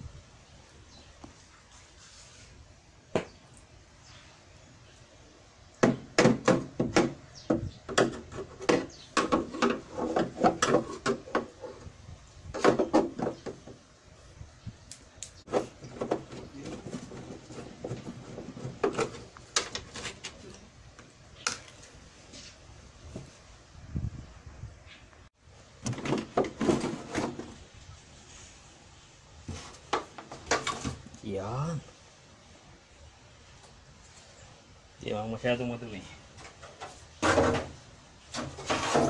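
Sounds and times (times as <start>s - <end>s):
knocks on plastic tv cabinet: 5.8s - 11.5s.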